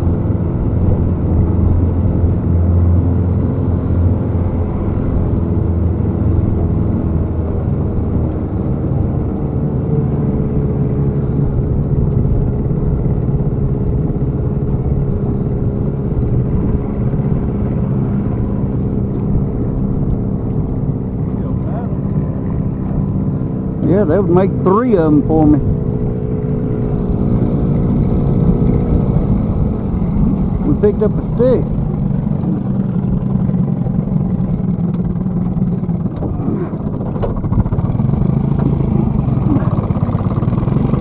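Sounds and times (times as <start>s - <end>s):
outboard motor running: 0.0s - 41.0s
water rushing along hull: 0.0s - 41.0s.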